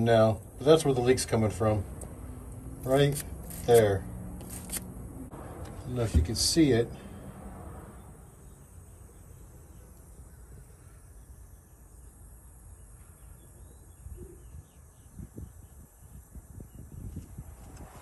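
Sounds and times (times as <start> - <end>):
faint distant bird chirps: 7.9 - 17.1.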